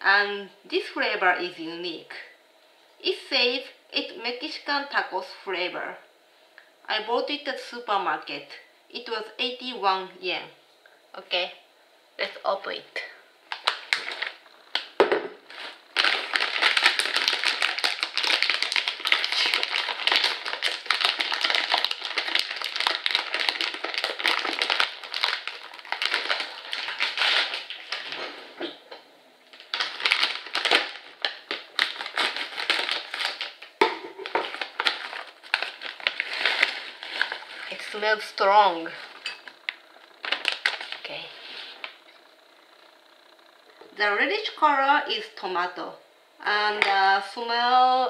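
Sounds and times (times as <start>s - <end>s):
chip bag crinkling: 13.5s - 28.2s, 29.5s - 41.1s.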